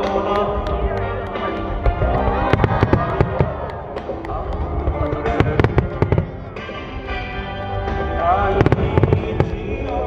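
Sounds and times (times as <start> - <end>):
fireworks bangs and cracks: 0.0 - 10.0
music: 0.0 - 10.0.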